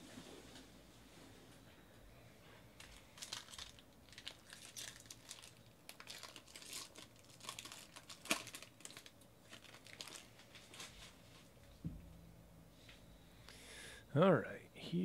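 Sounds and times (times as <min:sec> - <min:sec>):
foil wrapper crinkling: 0:02.8 - 0:11.2.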